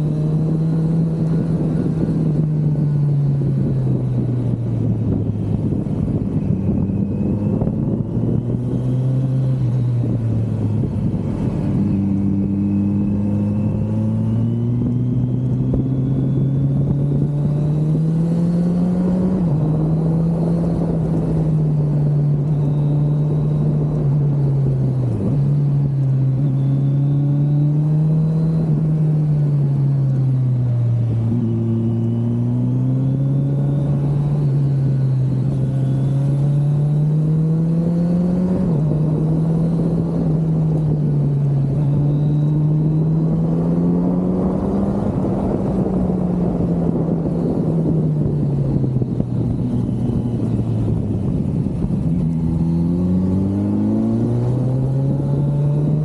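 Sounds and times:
motorcycle engine accelerating: 0:00.0 - 0:56.0.

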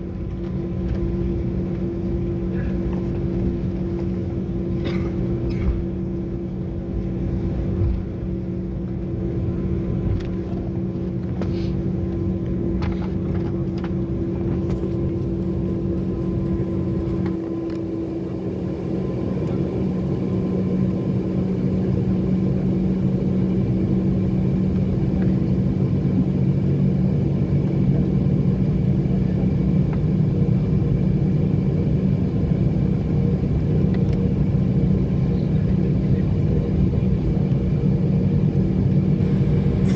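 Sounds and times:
airliner engines droning: 0:00.0 - 0:39.9.

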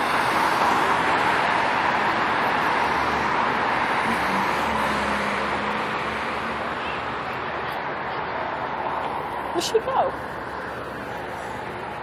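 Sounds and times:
cars passing close by: 0:00.0 - 0:12.0.

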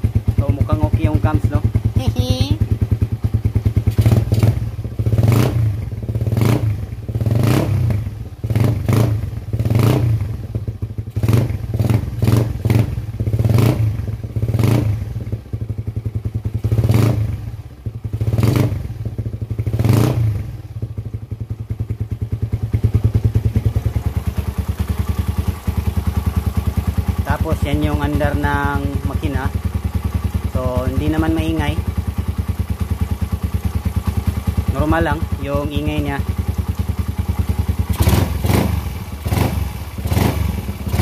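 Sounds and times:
motorcycle engine revving and idling: 0:00.0 - 0:41.0.

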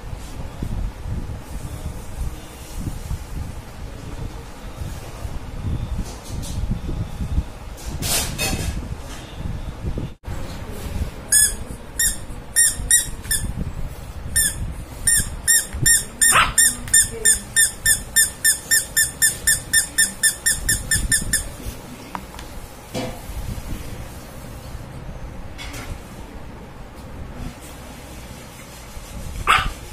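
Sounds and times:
rubber squeaky toy squeaking: 0:11.3 - 0:13.5, 0:14.4 - 0:21.6.

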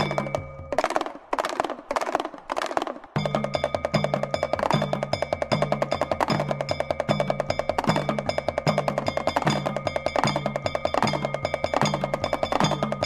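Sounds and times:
fast percussion strokes: 0:00.0 - 0:13.0
ringing high tones: 0:03.2 - 0:13.0.

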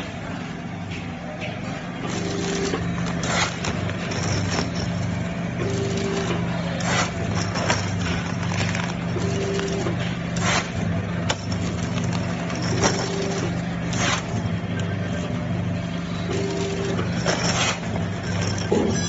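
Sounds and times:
packing machine humming: 0:00.0 - 0:19.0
plastic bags crinkling: 0:07.6 - 0:09.7
short machine tone: 0:18.5 - 0:19.0.

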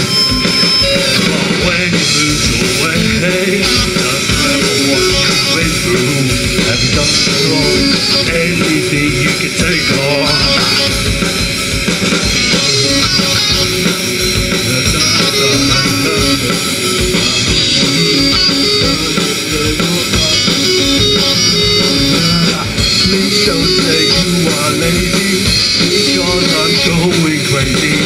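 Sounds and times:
bass guitar: 0:00.0 - 0:28.0
drum kit: 0:00.0 - 0:28.0
electric guitars: 0:00.0 - 0:28.0
keyboard: 0:00.0 - 0:28.0.

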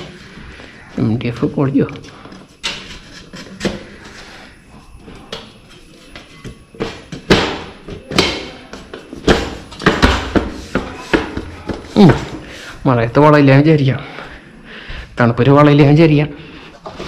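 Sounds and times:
boards knocking against metal rack: 0:06.8 - 0:12.4.

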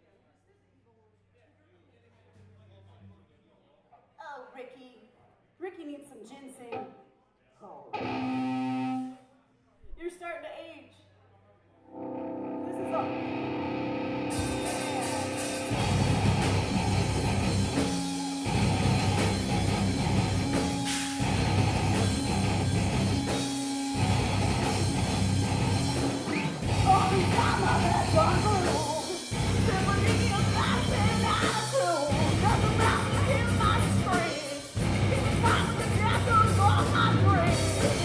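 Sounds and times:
hard rock band playing: 0:08.0 - 0:09.1, 0:12.0 - 0:38.0
person singing: 0:26.1 - 0:38.0.

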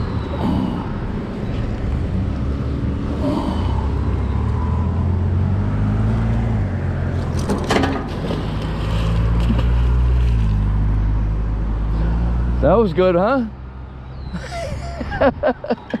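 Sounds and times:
vehicle engines droning: 0:00.0 - 0:16.0
heavy object splashing into water: 0:07.4 - 0:10.8.

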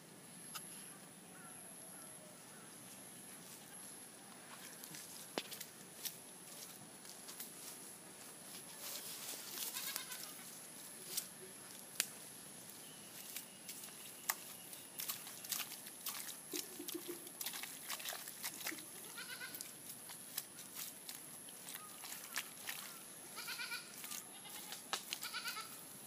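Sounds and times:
hands digging through wet mud: 0:13.7 - 0:23.1.

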